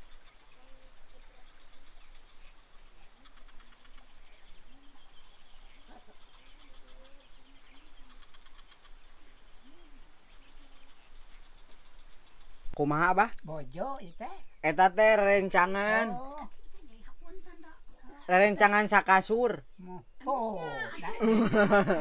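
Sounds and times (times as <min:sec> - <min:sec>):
faint animal calls: 0:00.0 - 0:12.8
fast insect chirping: 0:00.0 - 0:22.0
insect hiss: 0:00.0 - 0:22.0.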